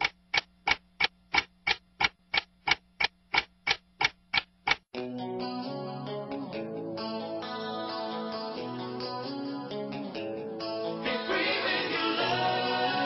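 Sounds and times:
steady ticking: 0.0s - 4.9s
guitar music: 5.0s - 13.0s.

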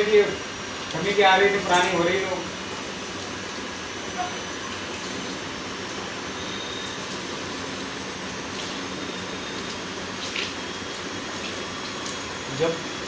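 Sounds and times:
washing machine water rushing: 0.0s - 13.0s.

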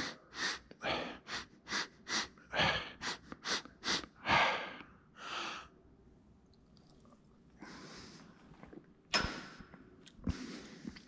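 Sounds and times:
man breathing sharply: 0.0s - 5.7s.

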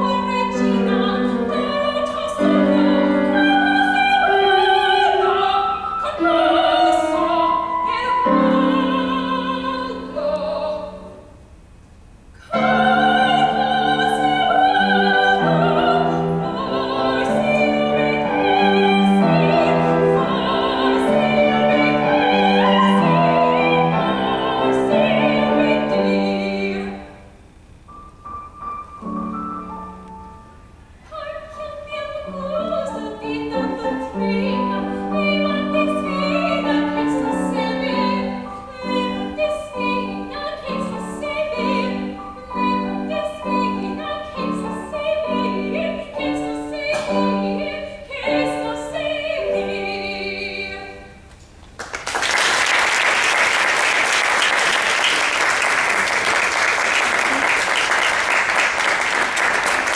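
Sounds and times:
woman singing classical style: 0.0s - 11.4s, 12.4s - 27.3s, 29.0s - 51.3s
piano chords: 12.5s - 51.0s
audience applauding: 51.8s - 59.9s.

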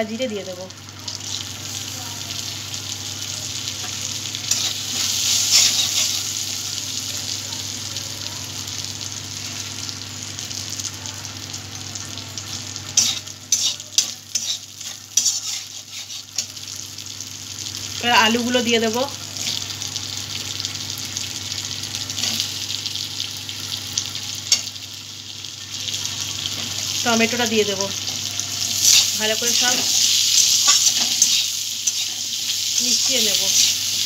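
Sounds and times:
spices sizzling in hot oil: 0.0s - 34.0s
metal spatula scraping pan: 4.5s - 6.2s, 13.0s - 16.5s, 28.7s - 32.3s.

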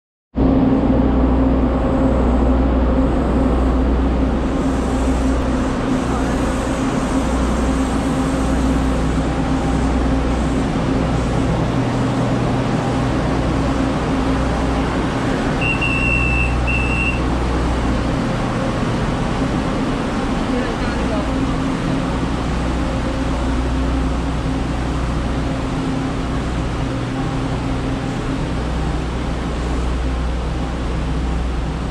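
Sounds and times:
diesel railcar engine idling: 0.4s - 31.9s
short high beeps: 15.6s - 17.2s.

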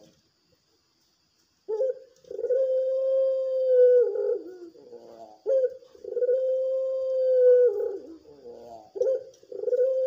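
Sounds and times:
dove cooing: 1.7s - 10.0s.

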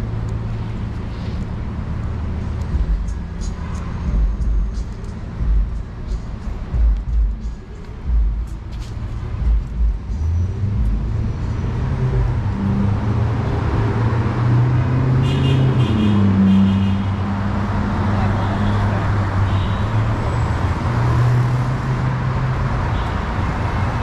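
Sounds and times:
vehicle engine passing: 10.1s - 22.8s.

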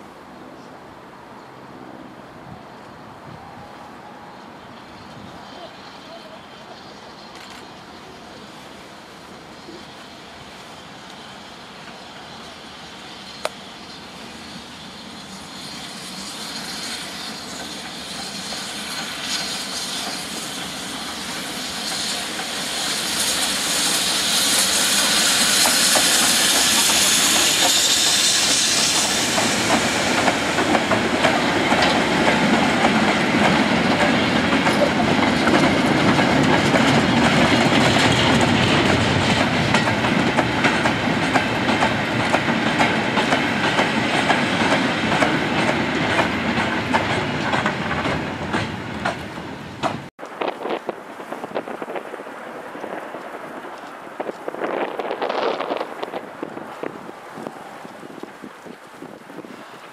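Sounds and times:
steam locomotive passing: 0.0s - 59.9s
hiss of steam: 3.4s - 59.9s
train wheels clacking on rails: 9.4s - 50.1s.

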